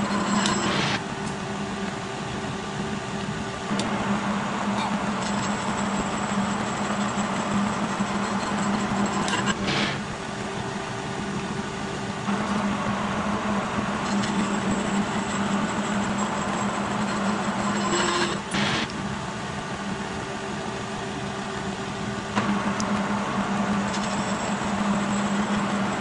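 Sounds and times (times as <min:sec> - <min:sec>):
milling machine cutting: 0:00.0 - 0:01.0, 0:03.7 - 0:10.2, 0:12.3 - 0:19.0
steady hum: 0:00.0 - 0:26.0.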